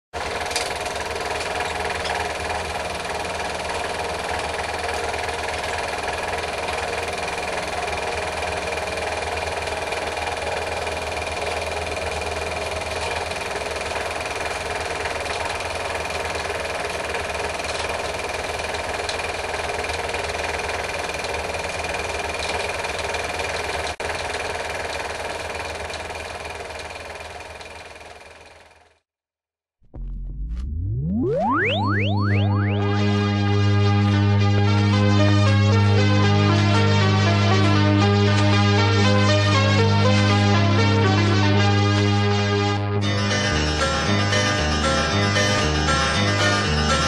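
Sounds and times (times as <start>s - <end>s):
small machine whirring: 0.2s - 29.0s.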